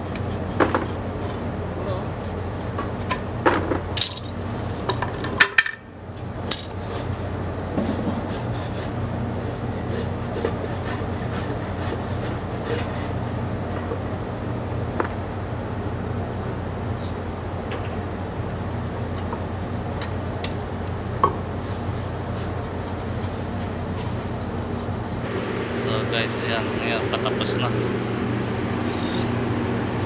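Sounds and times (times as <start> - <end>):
low machinery hum: 0.0 - 30.0
rubbing strokes on wood: 1.8 - 3.2, 7.8 - 13.0, 21.6 - 25.3.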